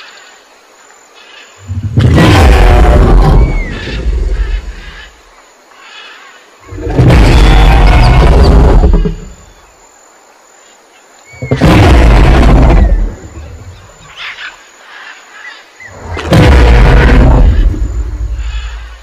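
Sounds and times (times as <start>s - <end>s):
deep dinosaur roars: 1.9s - 4.2s, 16.2s - 18.8s
faint bird-like chirps: 9.0s - 11.6s.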